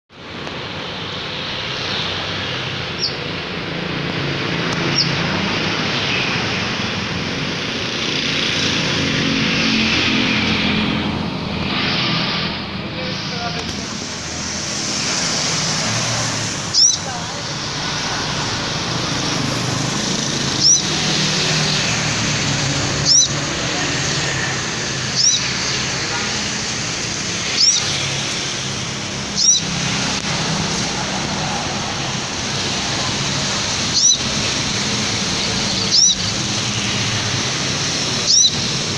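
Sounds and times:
street traffic engine hum: 0:00.1 - 0:38.9
bird chirping: 0:02.8 - 0:03.3, 0:04.8 - 0:06.7, 0:16.1 - 0:24.2, 0:24.8 - 0:30.4, 0:33.5 - 0:37.1, 0:37.8 - 0:38.9
bird chirps: 0:02.9 - 0:03.3, 0:04.8 - 0:05.2, 0:16.6 - 0:17.1, 0:20.4 - 0:22.0, 0:22.7 - 0:23.4, 0:25.0 - 0:25.8, 0:27.4 - 0:28.3, 0:29.2 - 0:29.9, 0:33.7 - 0:34.8, 0:35.4 - 0:36.6, 0:38.1 - 0:38.8.

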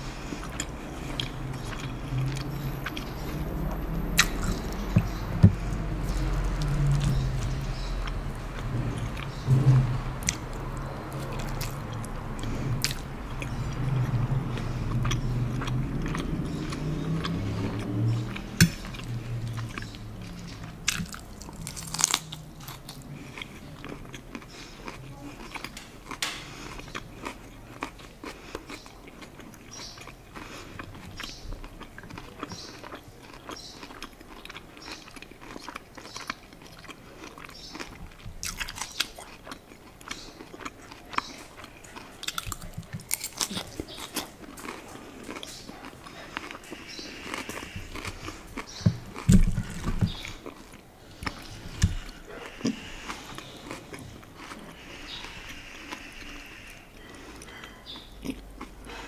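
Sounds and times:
close chewing of food: 0:00.0 - 0:59.0
crisp crunches of salad: 0:16.6 - 0:56.3.

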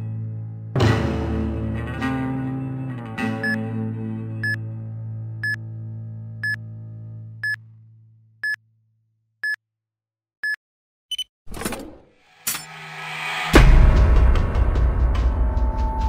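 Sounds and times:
electronic timer beeps: 0:10.4 - 0:11.3.

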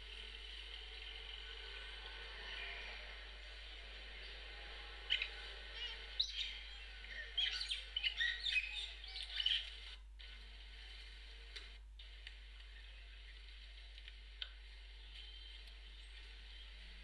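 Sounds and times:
ducklings peeping: 0:05.1 - 0:09.8.

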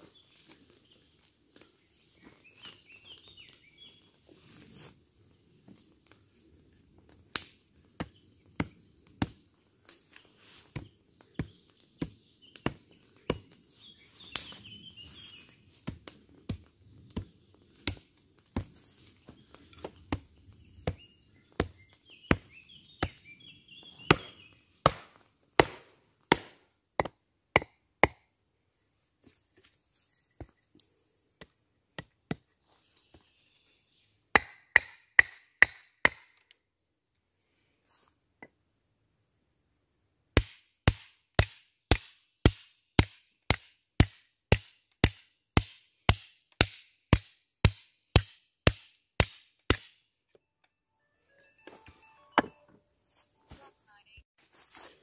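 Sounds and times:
blade chopping into wood: 0:24.1 - 0:28.2, 0:40.4 - 0:50.0.

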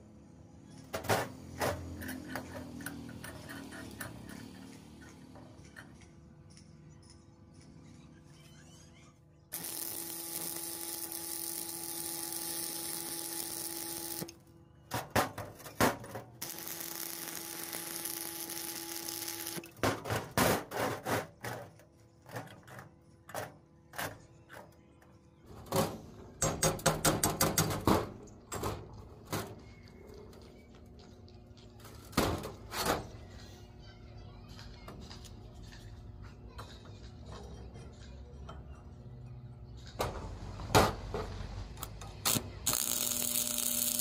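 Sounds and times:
arc welding crackling hiss: 0:09.5 - 0:14.3, 0:16.4 - 0:19.7, 0:42.3 - 0:44.0
taps on metal: 0:26.4 - 0:28.2.

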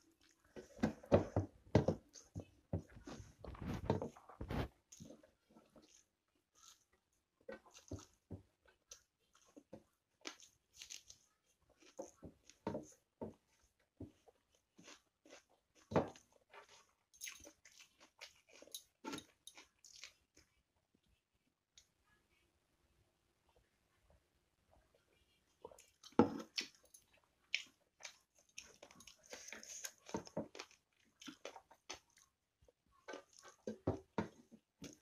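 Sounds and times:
chewing and mouth clicks: 0:04.5 - 0:20.5, 0:25.6 - 0:33.8.

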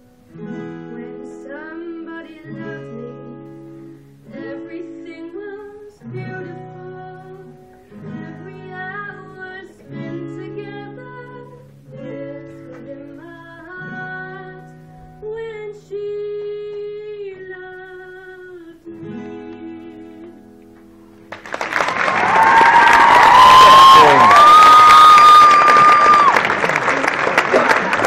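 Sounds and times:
acoustic guitar: 0:00.0 - 0:26.7
woman singing a ballad: 0:00.4 - 0:20.6
audience cheering and applauding: 0:21.3 - 0:28.0.

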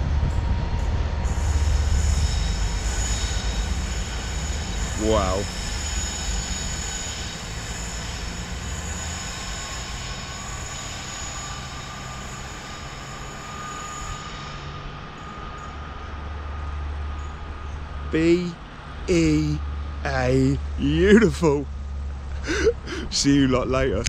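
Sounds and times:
low rumble: 0:00.0 - 0:03.8
diesel locomotive engine drone: 0:00.0 - 0:24.0
high engine whine: 0:00.0 - 0:24.0.

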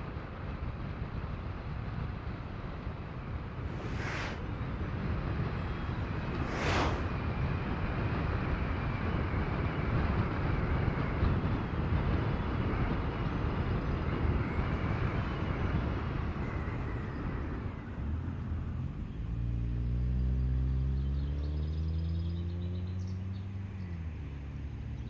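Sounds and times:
wind and road rushing: 0:00.1 - 0:20.7
wind gusts on microphone: 0:03.2 - 0:09.5.

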